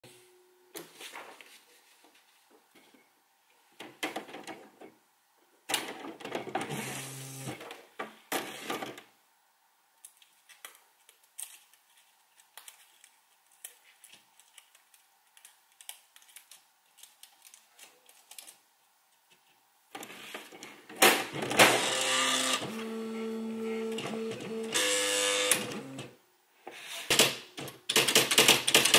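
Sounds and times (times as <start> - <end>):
typewriter mechanical whirring: 21.4 - 26.1.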